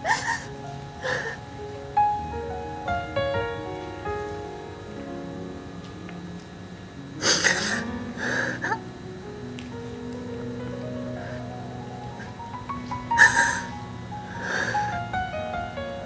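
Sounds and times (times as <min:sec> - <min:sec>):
woman sobbing: 0:00.0 - 0:01.4, 0:13.2 - 0:13.7
soft piano music: 0:00.0 - 0:16.0.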